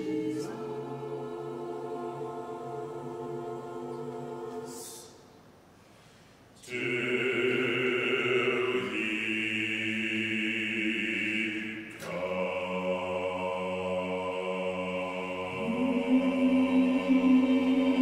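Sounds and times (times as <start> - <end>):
choir singing chords: 0.0 - 5.6, 6.6 - 18.0.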